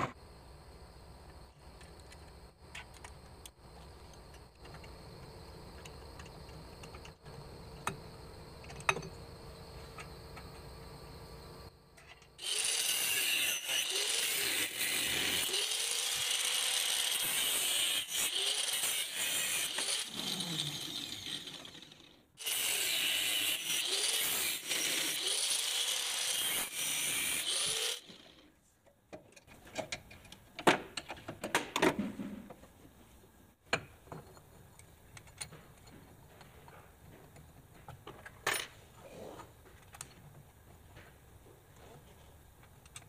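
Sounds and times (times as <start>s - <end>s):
electric grinder grinding steel: 12.4s - 28.4s.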